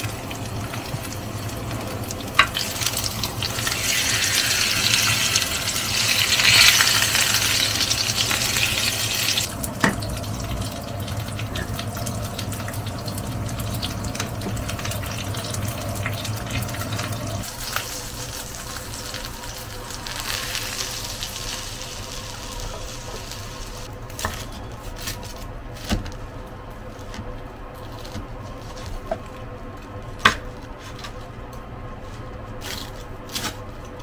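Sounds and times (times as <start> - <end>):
food sizzling in a frying pan: 0.0 - 23.9.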